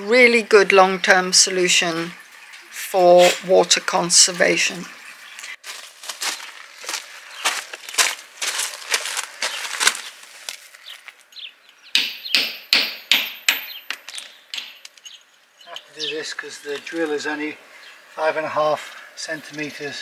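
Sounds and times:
hammer striking chisel into wall: 11.9 - 14.8.

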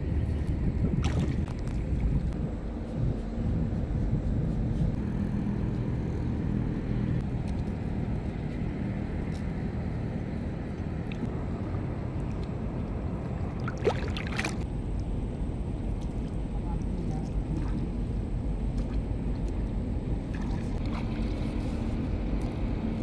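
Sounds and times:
low mechanical hum: 0.0 - 23.0
water splashing: 0.9 - 2.3, 11.0 - 14.6, 20.2 - 21.5.

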